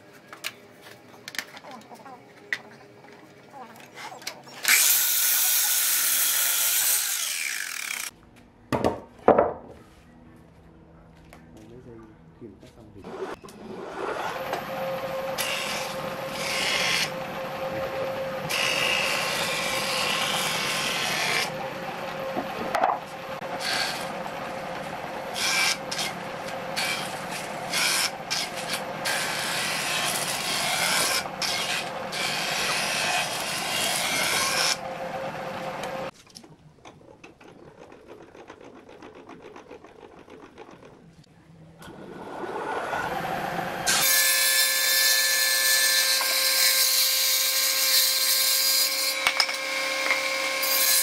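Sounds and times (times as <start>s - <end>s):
board cutting rushing noise: 13.0s - 36.1s, 41.8s - 48.9s.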